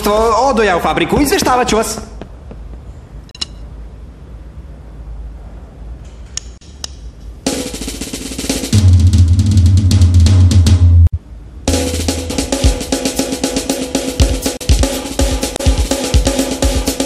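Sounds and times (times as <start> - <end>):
fast loud drumming: 7.5 - 11.1, 11.7 - 17.0.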